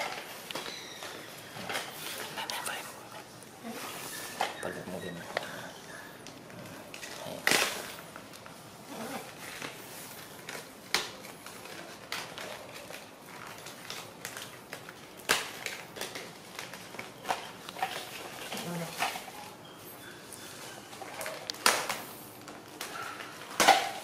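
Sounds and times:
plastic packaging crinkling: 6.2 - 19.6.

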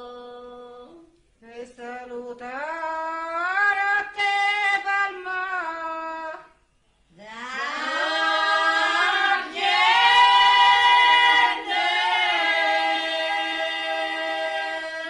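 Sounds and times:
women's folk chorus singing: 7.2 - 15.0.

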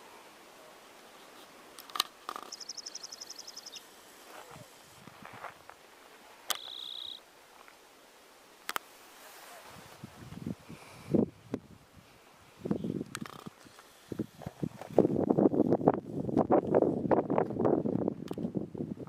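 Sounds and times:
sharp clicks: 6.5 - 7.1
small animal high-pitched trill: 6.6 - 7.2.

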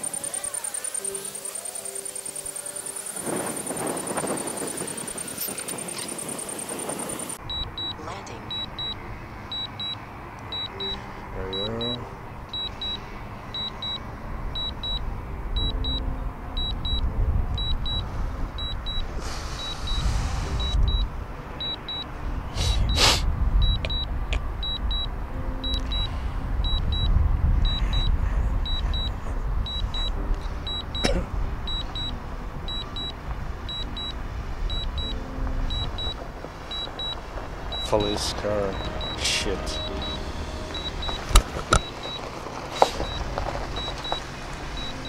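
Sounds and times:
short high alert beeps: 0.0 - 3.1, 7.2 - 12.0, 34.7 - 42.2
wind rumbling on microphone: 3.1 - 8.7, 14.3 - 37.9
brief hiss: 19.2 - 20.8, 22.6 - 23.3.

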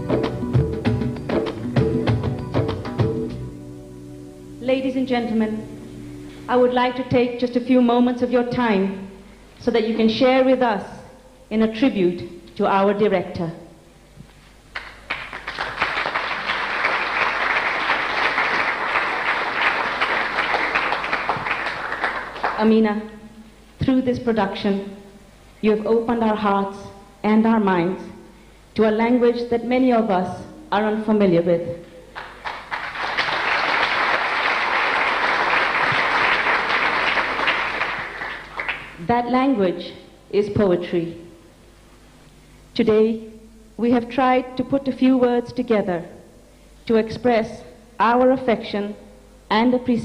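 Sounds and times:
audience applauding: 14.7 - 22.6, 32.1 - 39.0.

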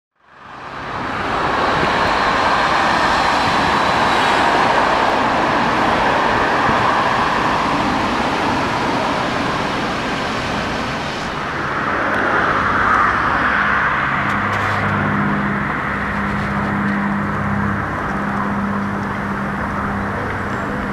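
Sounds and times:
road traffic passing cars: 0.2 - 20.9
low steady hum: 11.2 - 20.9.

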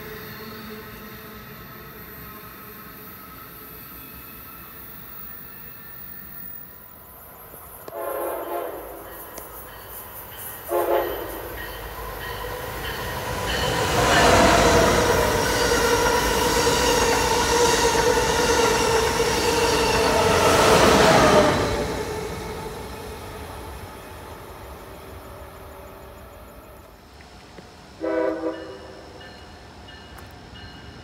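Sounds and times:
train passing with rushing noise: 0.0 - 31.0
train horn toots: 7.9 - 9.4, 10.6 - 11.7, 28.0 - 29.1.

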